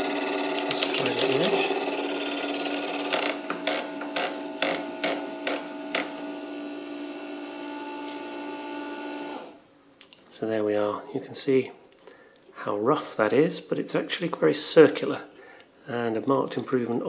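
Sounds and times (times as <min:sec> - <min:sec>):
small motor whining: 0:00.0 - 0:09.6.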